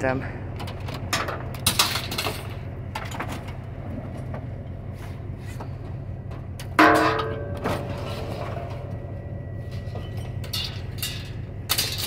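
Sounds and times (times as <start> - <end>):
steady low rumble: 0.0 - 12.0
loud metal clang: 6.8 - 8.9.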